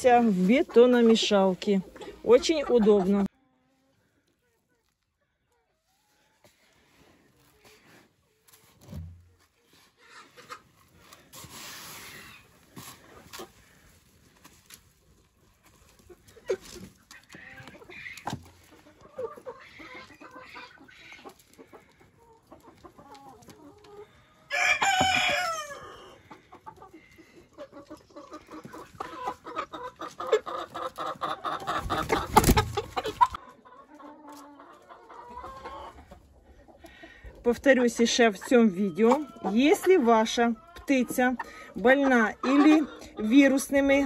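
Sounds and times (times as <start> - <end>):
chickens clucking: 0.0 - 44.0
rustling of feed being stirred: 5.8 - 25.6
chicken drawn-out call: 19.0 - 36.1.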